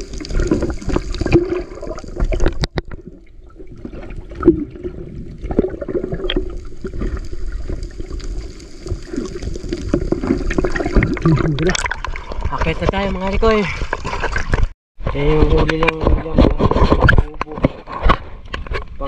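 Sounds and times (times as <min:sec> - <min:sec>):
water moving underwater: 0:00.0 - 0:14.7.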